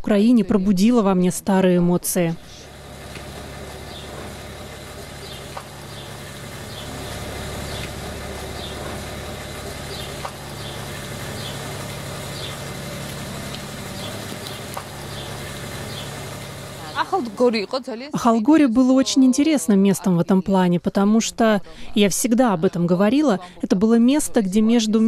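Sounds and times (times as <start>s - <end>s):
low engine-like hum: 0.5s - 19.0s.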